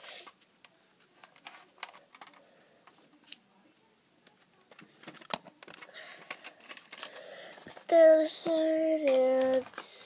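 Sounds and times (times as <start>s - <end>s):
plastic toy clicks and rustling: 1.2s - 3.4s, 4.7s - 7.9s, 8.9s - 10.0s.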